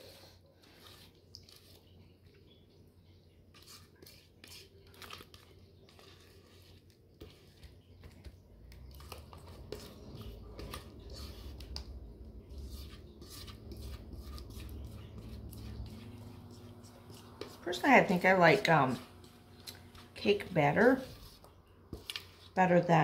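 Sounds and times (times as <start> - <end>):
utensil scraping a mixing bowl: 0.0 - 2.0, 3.5 - 23.0
low hum: 9.0 - 22.0.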